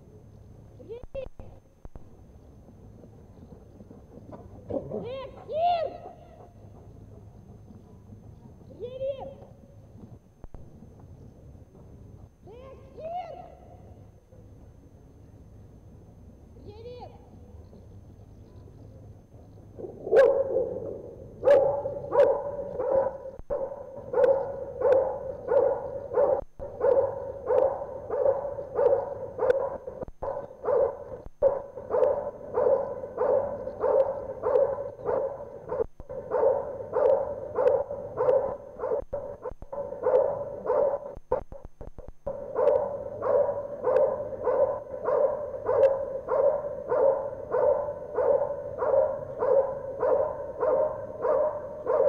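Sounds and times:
dog barking: 20.1s - 41.5s, 42.3s - 52.0s.

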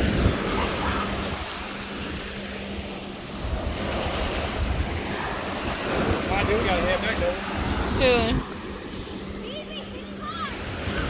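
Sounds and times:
small waves breaking on shore: 0.0s - 11.0s
wind buffeting microphone: 0.0s - 11.0s.

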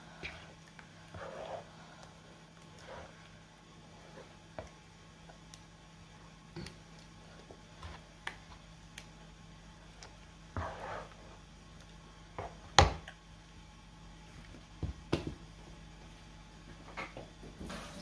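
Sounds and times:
spoon stirring in a pan: 0.0s - 5.7s, 10.0s - 11.4s.

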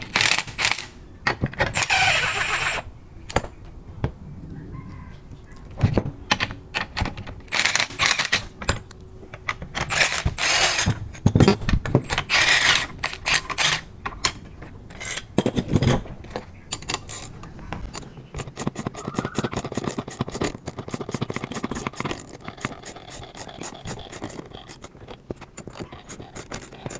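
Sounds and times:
cordless impact wrench bursts: 1.7s - 2.8s, 9.9s - 10.9s, 12.2s - 13.8s.

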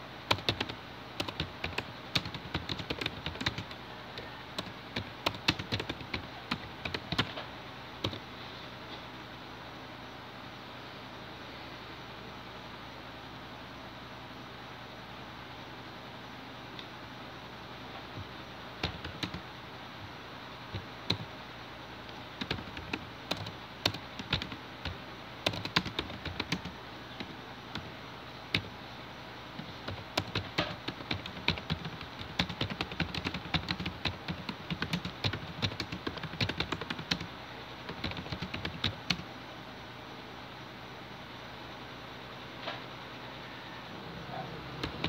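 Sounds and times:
typing on computer keyboard: 0.3s - 7.4s, 18.8s - 19.4s, 20.7s - 21.3s, 22.1s - 27.9s, 28.5s - 28.7s, 29.6s - 37.3s, 37.9s - 39.2s, 44.8s - 45.0s.

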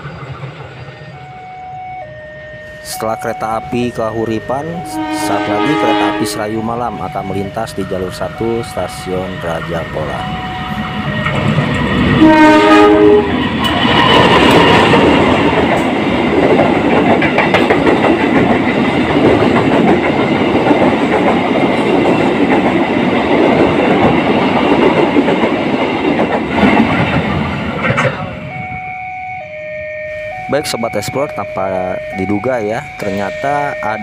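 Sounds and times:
locomotive horn blast: 4.8s - 6.8s, 12.2s - 13.4s
wheel-on-rail noise: 10.2s - 28.9s
clicking over rail joints: 13.6s - 28.3s.

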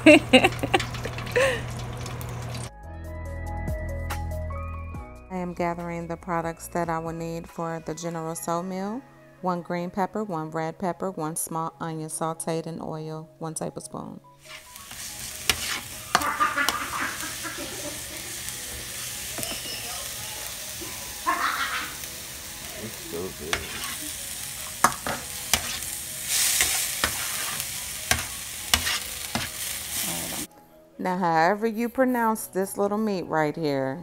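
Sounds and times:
vegetables sizzling in oil: 0.0s - 2.7s, 14.4s - 30.5s.

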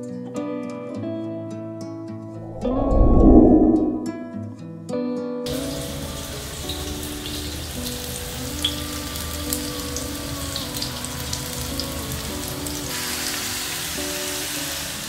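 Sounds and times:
onions frying in oil: 5.5s - 15.0s.

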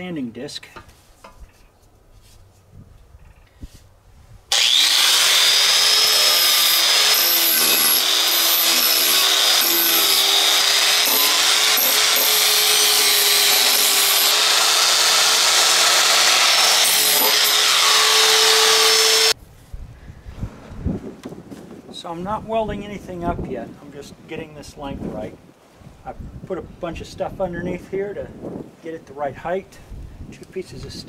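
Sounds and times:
angle grinder sanding steel: 4.5s - 19.4s
grinder motor whine: 4.5s - 19.4s.

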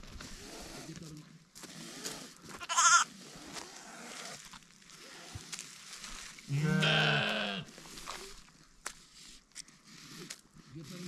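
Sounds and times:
high-pitched lamb call: 2.6s - 3.1s, 6.5s - 7.7s
sheep bleating: 2.6s - 3.1s, 6.5s - 7.7s.

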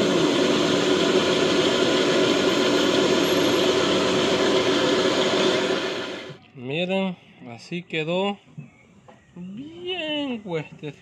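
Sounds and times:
disc mill grinding: 0.0s - 6.4s.

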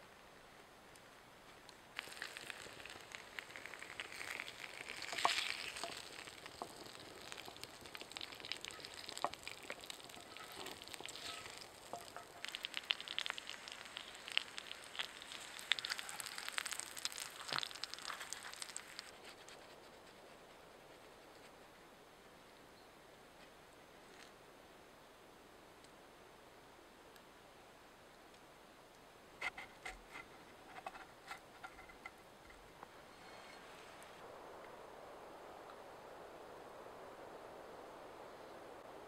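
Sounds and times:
crackles and pops: 0.9s - 21.6s
food sizzling in a pan: 2.0s - 19.2s.

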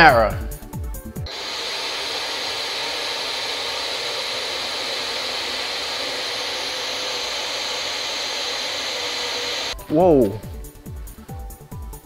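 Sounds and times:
tv static hiss: 1.3s - 9.7s.

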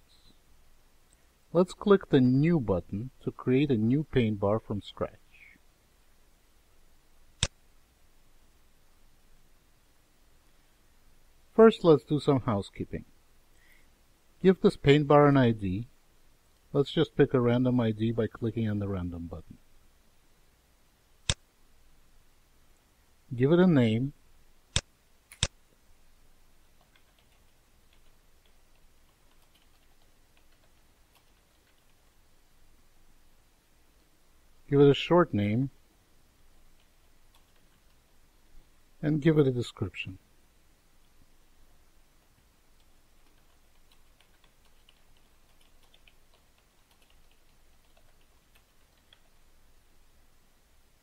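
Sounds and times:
sharp click: 21.2s - 21.4s, 24.7s - 25.6s
keyboard typing: 26.8s - 32.2s, 36.8s - 38.2s, 42.8s - 49.4s.

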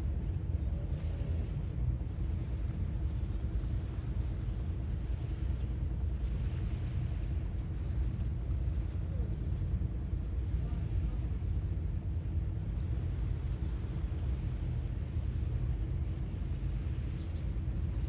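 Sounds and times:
waves washing: 0.0s - 18.0s.

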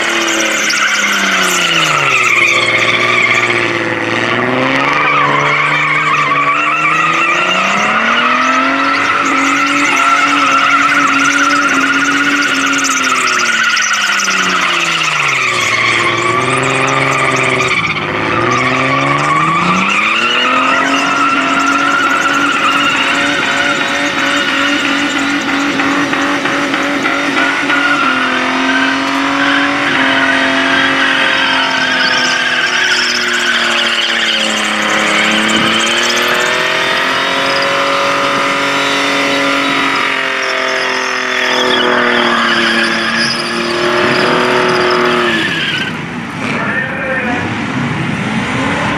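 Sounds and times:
tyres screeching: 0.0s - 47.2s
car engine at high revs: 0.0s - 48.9s.

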